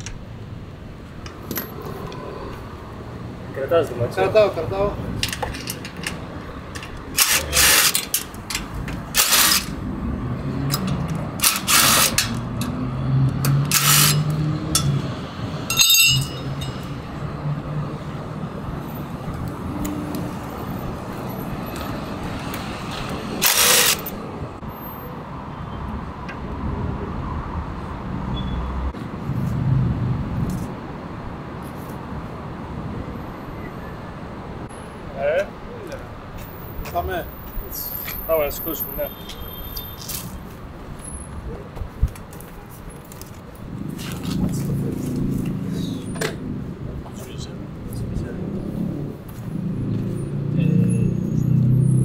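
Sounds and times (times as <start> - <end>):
metallic clink: 15.7 - 17.0.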